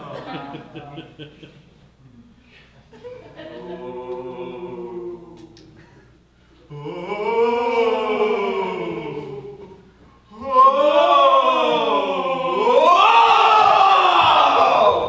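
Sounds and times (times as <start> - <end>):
voices singing wordless notes: 3.4 - 15.0.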